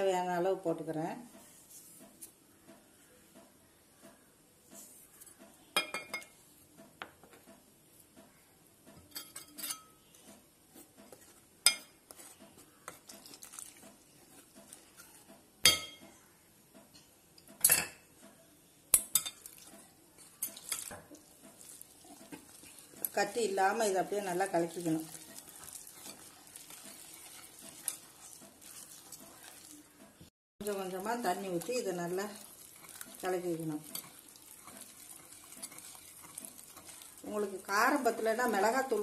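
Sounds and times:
scraping and rustling of flour: 0:10.0 - 0:15.3, 0:19.6 - 0:39.0
utensil clinking glass bowl: 0:30.6 - 0:38.8.

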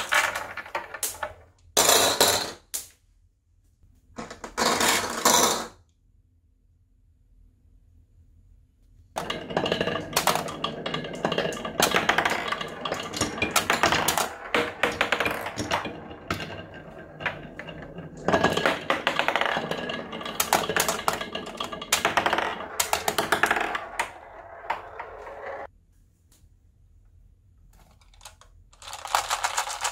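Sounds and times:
glass marbles clattering: 0:09.2 - 0:25.7.

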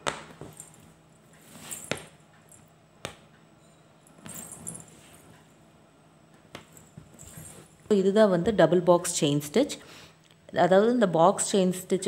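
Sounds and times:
fabric rustle: 0:01.4 - 0:02.1, 0:04.2 - 0:05.4.

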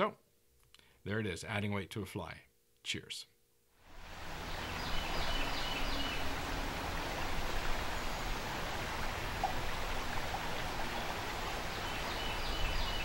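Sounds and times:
river water rushing: 0:03.9 - 0:13.0.

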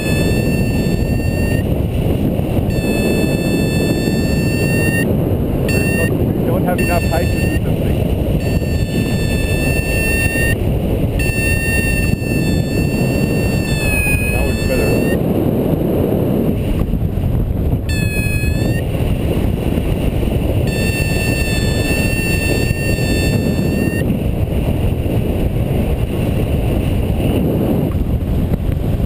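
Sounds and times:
high whistling tones: 0:00.0 - 0:01.7, 0:02.7 - 0:05.1, 0:05.7 - 0:07.7, 0:08.4 - 0:10.6, 0:11.2 - 0:15.2, 0:17.9 - 0:18.8, 0:20.7 - 0:24.0
wind rumble on microphone: 0:00.0 - 0:29.0.

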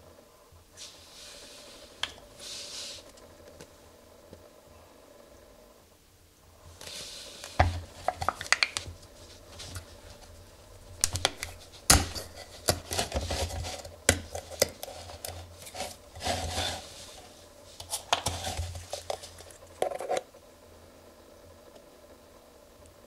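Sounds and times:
foil crinkling: 0:11.0 - 0:20.2.

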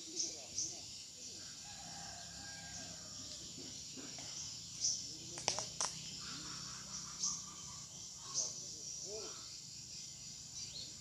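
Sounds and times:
high insect drone: 0:00.0 - 0:11.0
insect chirps: 0:00.0 - 0:11.0
sharp clicks: 0:05.4 - 0:06.0.

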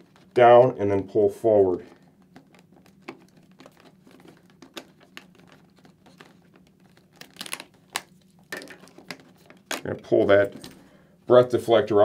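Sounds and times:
handling rustle: 0:01.7 - 0:10.9.

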